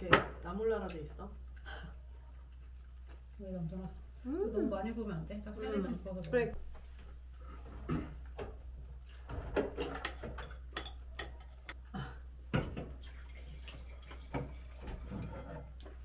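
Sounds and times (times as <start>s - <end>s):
cutlery and tableware clinking: 9.3s - 11.8s.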